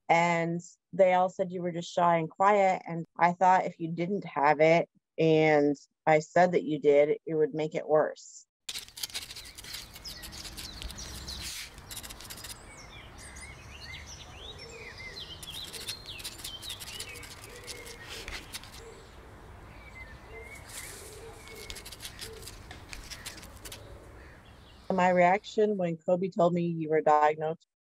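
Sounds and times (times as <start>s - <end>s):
scattered clicks: 8.7s - 12.6s
small birds chirping: 9.1s - 25.0s.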